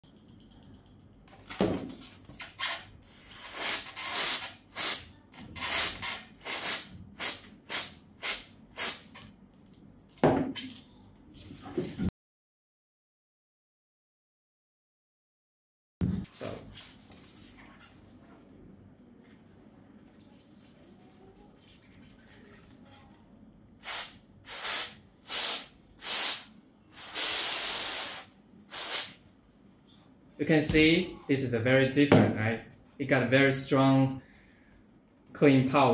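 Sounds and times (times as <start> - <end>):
aerosol spray hissing bursts: 5.7 - 9.0, 23.8 - 29.2.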